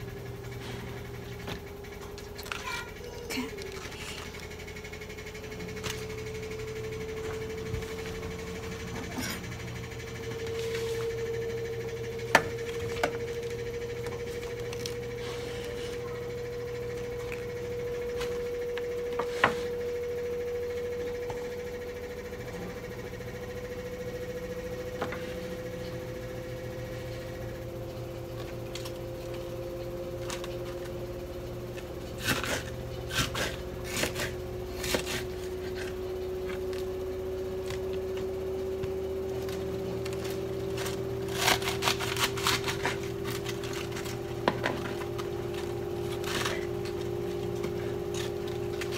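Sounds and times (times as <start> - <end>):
steady mechanical hum: 0.0 - 48.9
knife chopping cabbage on board: 32.2 - 35.7.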